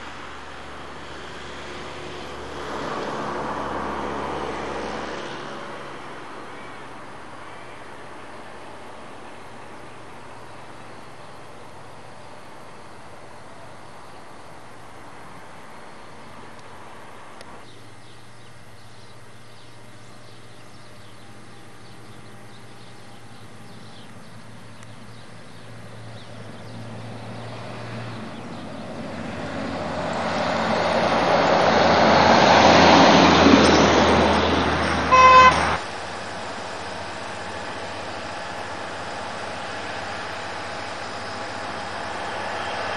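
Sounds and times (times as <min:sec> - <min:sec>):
vehicle passing on wet road: 0:00.0 - 0:13.8, 0:25.6 - 0:42.9
short horn toot: 0:35.1 - 0:35.8.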